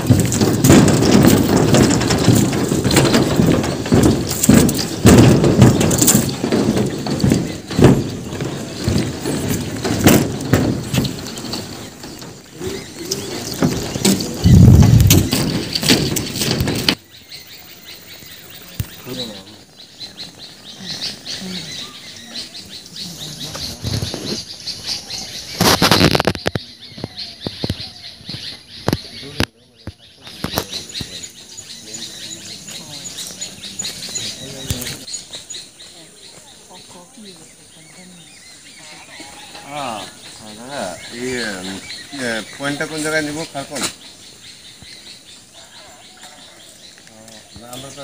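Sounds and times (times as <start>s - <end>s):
footsteps on steel footbridge: 0.0s - 17.0s
deck and cables rattling: 0.0s - 36.8s, 37.8s - 48.0s
small birds chirping: 0.0s - 48.0s.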